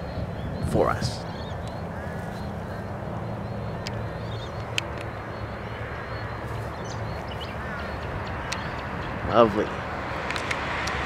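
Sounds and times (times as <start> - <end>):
faint bird chirps: 0.0 - 9.2
low engine hum: 0.0 - 11.0
sharp clicks: 3.8 - 5.2, 10.2 - 11.0.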